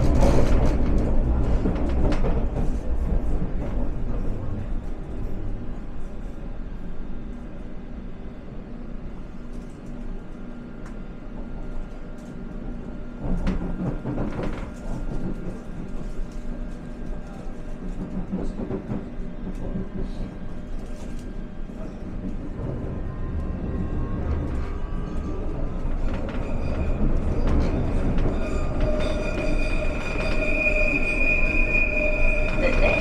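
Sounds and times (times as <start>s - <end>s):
train clattering: 0.0s - 5.5s, 13.2s - 31.2s
train wheels and motors rumbling: 0.0s - 33.0s.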